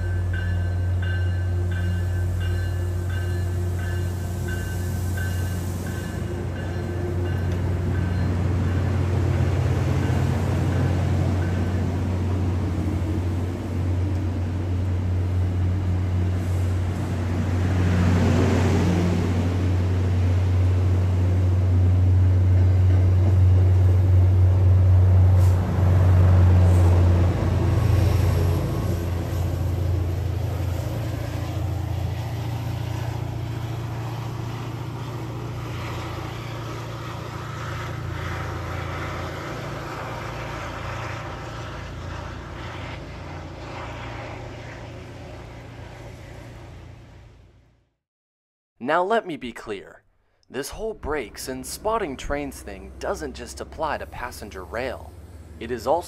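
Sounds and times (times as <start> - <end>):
train coaches rolling: 0.0 - 21.9, 50.6 - 56.0
diesel locomotive engine drone: 0.0 - 48.0, 50.5 - 56.0.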